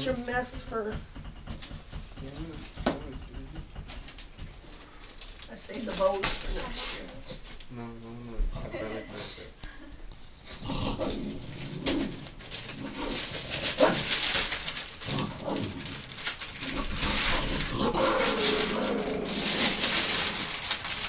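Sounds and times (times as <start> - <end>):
wrapping paper crinkling and tearing: 3.9 - 7.6, 11.0 - 21.0
dog noises: 10.4 - 16.0.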